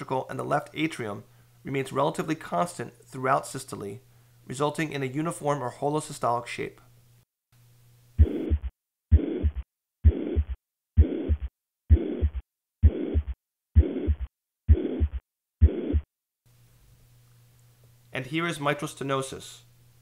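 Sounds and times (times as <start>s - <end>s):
heartbeat with murmur: 8.2s - 16.1s.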